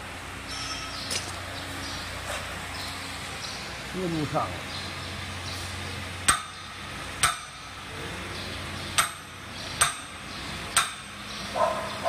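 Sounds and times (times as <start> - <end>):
sharp metal knocks with ring: 6.3 - 7.7, 9.0 - 10.2, 10.8 - 11.2.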